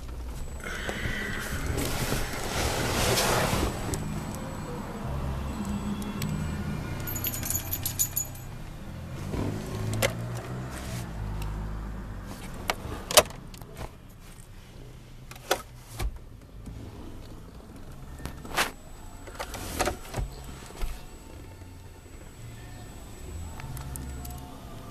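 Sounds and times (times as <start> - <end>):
keys jingling: 7.0 - 8.6.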